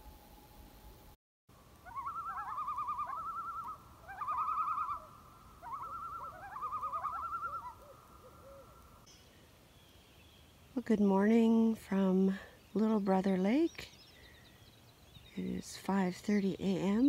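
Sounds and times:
lower gliding loon calls: 1.8 - 8.9
loons tremolo calls: 1.8 - 9.0.

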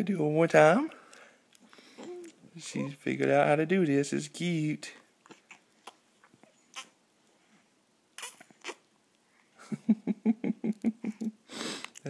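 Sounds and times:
baby popping lips: 8.2 - 8.8.

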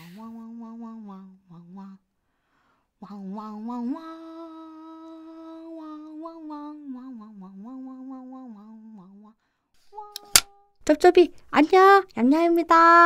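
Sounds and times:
person humming a slow tune: 0.0 - 2.0, 3.0 - 10.7.

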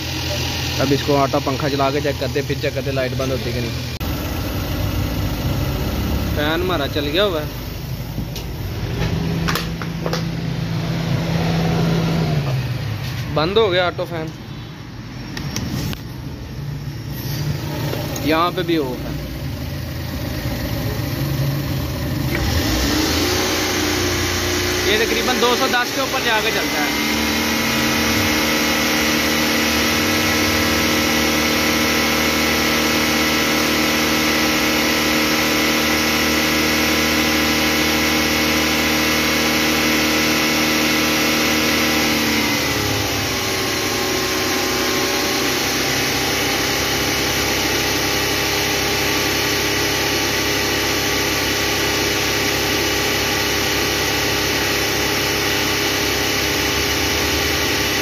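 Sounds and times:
car engine idling: 0.0 - 33.7.

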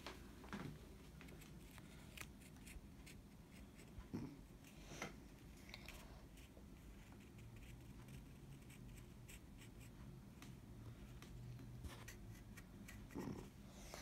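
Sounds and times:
low steady hum: 0.0 - 14.0
pencil scratching on paper: 6.3 - 10.0, 11.8 - 13.6.

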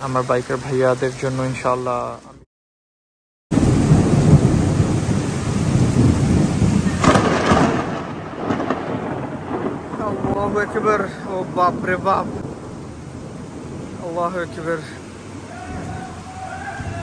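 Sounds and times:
heavy rain: 0.0 - 2.4, 3.5 - 17.0
thunder rumbling and cracking: 3.5 - 16.2.

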